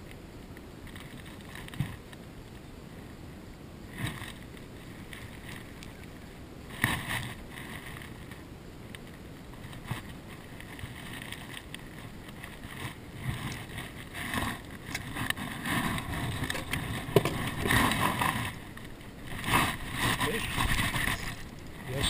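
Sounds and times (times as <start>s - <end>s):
water washing against boat: 9.5s - 22.0s.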